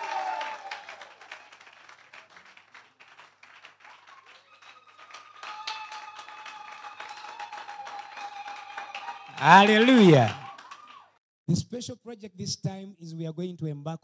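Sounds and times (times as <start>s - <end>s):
audience clapping: 0.0s - 11.2s.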